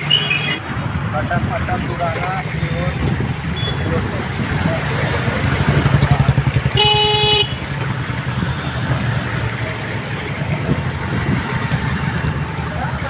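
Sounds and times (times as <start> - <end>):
vehicle engines rumbling: 0.0 - 13.0
vehicle horn beep: 3.6 - 3.9, 6.8 - 7.6.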